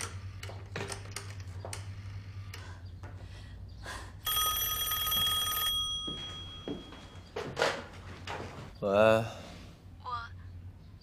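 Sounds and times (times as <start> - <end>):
telephone bell ringing: 4.3 - 7.3.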